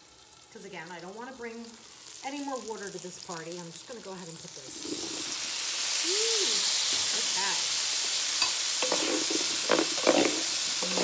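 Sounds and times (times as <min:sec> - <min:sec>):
potatoes sizzling in hot oil: 0:00.0 - 0:11.0
wooden spoon scraping a pan: 0:08.4 - 0:11.0.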